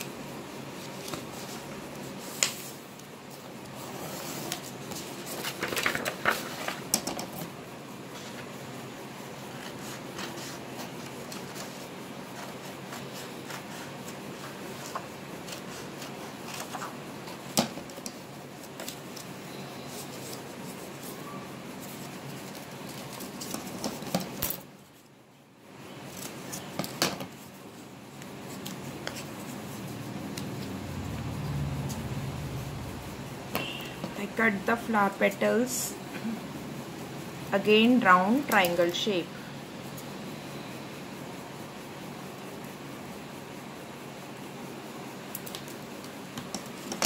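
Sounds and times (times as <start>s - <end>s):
steady background hiss: 0.0s - 47.0s
paper being handled: 4.2s - 7.0s.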